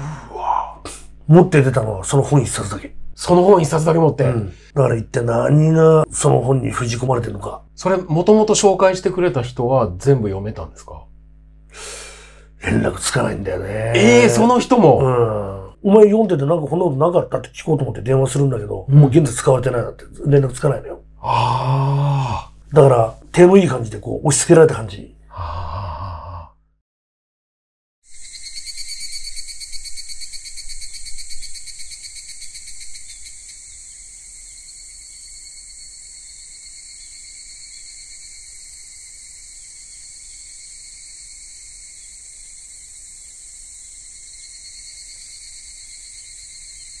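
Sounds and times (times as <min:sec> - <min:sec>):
insects trilling: 0:21.2 - 0:22.5, 0:28.1 - 0:47.0.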